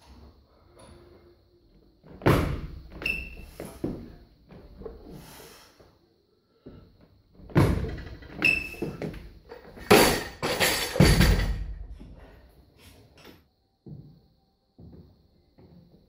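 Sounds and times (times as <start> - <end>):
barbell plates rattling: 9.6 - 11.8
barbell hitting floor: 9.8 - 11.8.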